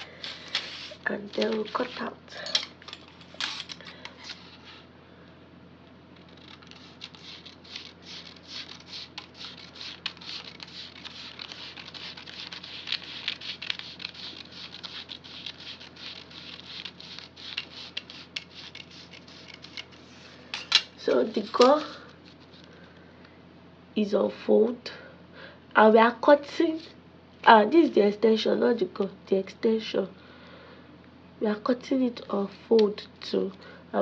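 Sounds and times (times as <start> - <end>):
paper rasping and crinkling: 0.0 - 2.1, 6.2 - 20.4
scissors snipping paper: 0.3 - 2.1, 6.2 - 20.0.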